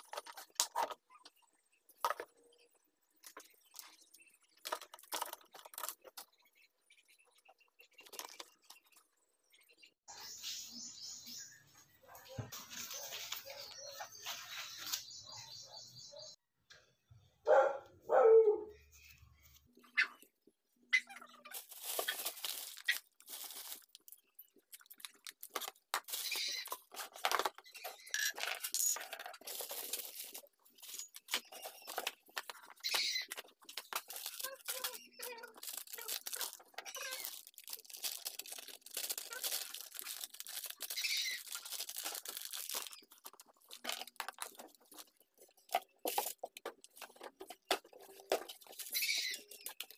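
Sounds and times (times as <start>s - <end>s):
plastic bags rustling: 21.4s - 27.5s, 29.0s - 49.9s
small objects clicking and knocking: 21.6s - 49.9s.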